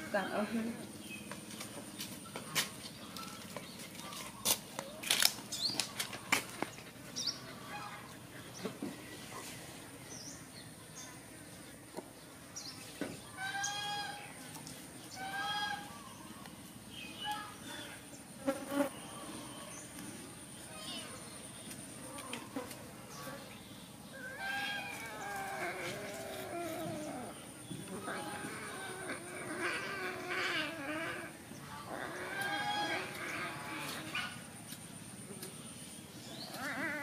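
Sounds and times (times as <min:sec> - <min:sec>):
animals scuffling on concrete: 0:00.0 - 0:20.2, 0:20.8 - 0:23.7, 0:24.3 - 0:37.0
small birds chirping: 0:00.0 - 0:37.0
high-pitched animal calls: 0:13.3 - 0:14.3, 0:15.1 - 0:16.2, 0:24.1 - 0:34.5, 0:36.3 - 0:37.0.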